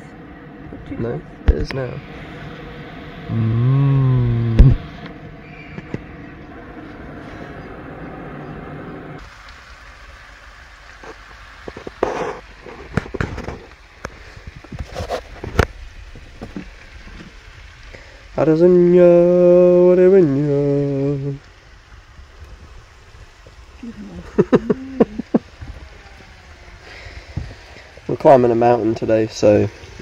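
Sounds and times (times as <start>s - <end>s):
gas burner hissing: 0.0s - 30.0s
short vocal sound: 3.3s - 5.0s.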